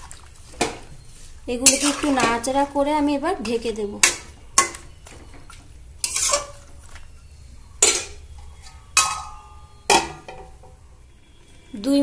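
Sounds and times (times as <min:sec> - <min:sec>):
metal spatula clanking on pan: 0:04.0 - 0:04.9, 0:06.0 - 0:06.7, 0:07.8 - 0:10.8.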